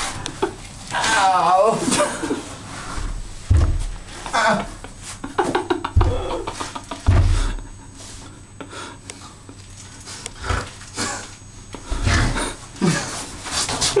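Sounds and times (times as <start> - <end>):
deep bumps on microphone: 3.4 - 4.0.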